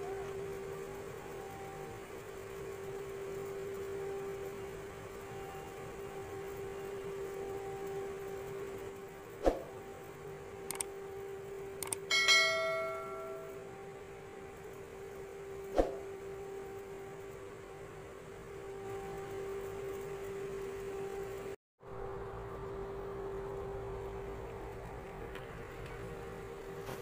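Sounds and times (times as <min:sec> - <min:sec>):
steady hum: 0:00.0 - 0:27.0
clang of struck metal: 0:12.1 - 0:13.6.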